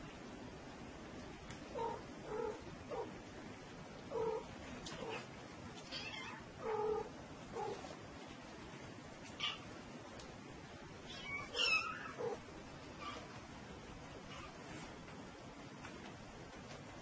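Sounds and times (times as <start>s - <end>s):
cat meowing: 5.8s - 7.8s, 11.1s - 12.4s.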